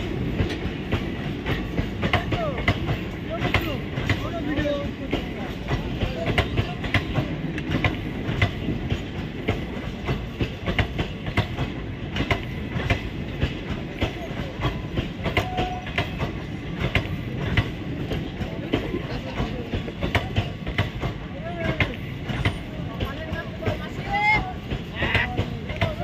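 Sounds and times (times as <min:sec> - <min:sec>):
train wheels rumbling on rail: 0:00.0 - 0:26.0
wheels clacking over rail joints: 0:00.0 - 0:26.0.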